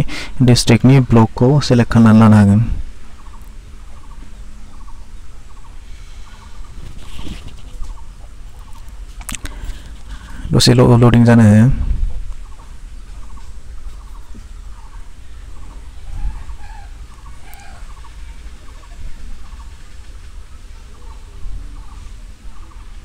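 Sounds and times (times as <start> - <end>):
chickens clucking: 3.2 - 10.6, 12.4 - 23.0.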